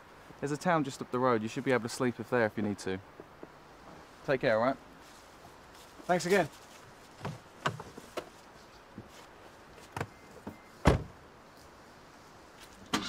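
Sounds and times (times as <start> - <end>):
car door slamming: 10.5 - 11.2.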